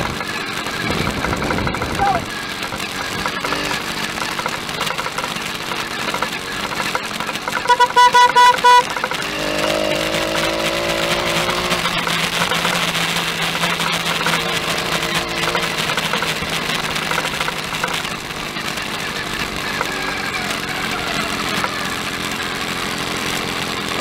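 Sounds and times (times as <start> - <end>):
small engine running: 0.0 - 24.0
horn toots: 6.1 - 18.0.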